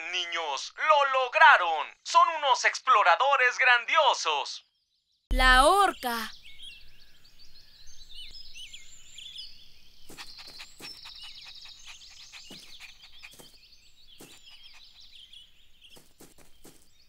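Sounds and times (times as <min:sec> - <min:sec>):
birds chirping and trilling: 0:04.6 - 0:17.0.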